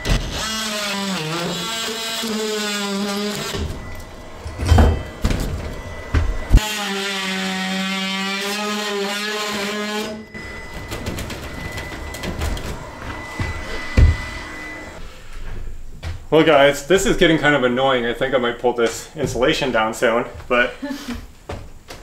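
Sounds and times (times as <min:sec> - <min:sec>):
cordless drill running: 0:00.0 - 0:04.2.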